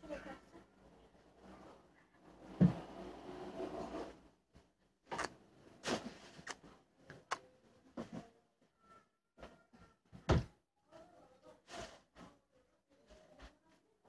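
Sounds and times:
objects knocking and thudding: 0:02.5 - 0:03.0, 0:10.1 - 0:10.6.

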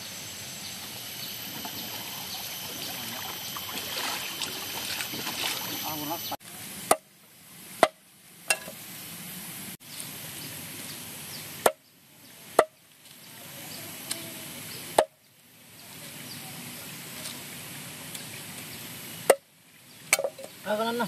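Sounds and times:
steady background hiss: 0:00.0 - 0:21.0
sharp chopping strikes: 0:06.9 - 0:07.1.

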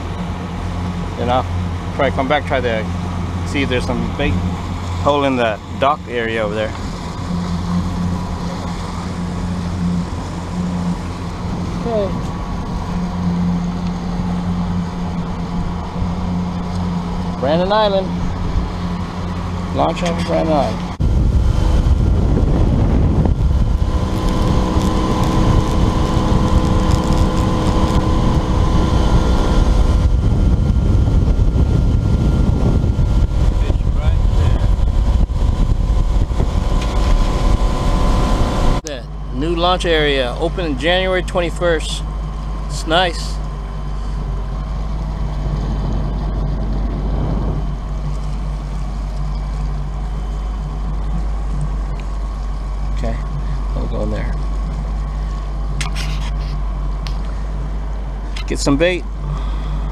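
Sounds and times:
motorboat running at speed: 0:00.0 - 0:59.9
wind rushing over microphone: 0:05.5 - 0:38.9, 0:43.8 - 0:49.2.

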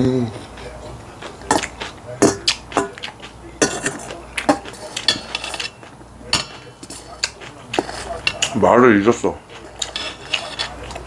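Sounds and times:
chewing close to microphone: 0:00.3 - 0:11.0
metal spoon clinking in steel bowl: 0:03.6 - 0:08.6.

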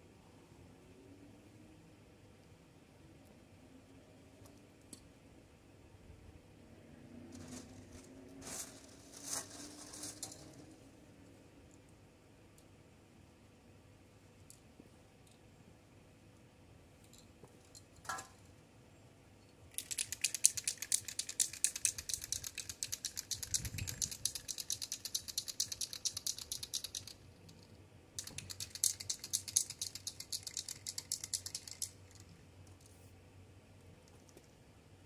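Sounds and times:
spray can rattling while shaken: 0:19.7 - 0:27.2, 0:28.2 - 0:32.3.

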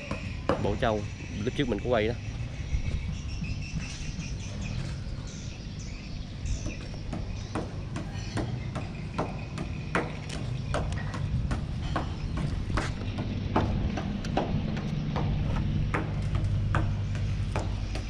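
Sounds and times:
low steady rumble: 0:08.6 - 0:18.0.

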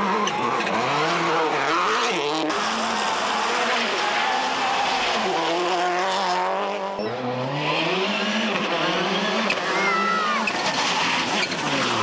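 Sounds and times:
rally car engine revving: 0:00.0 - 0:12.0
tyre squeal: 0:09.2 - 0:12.0.

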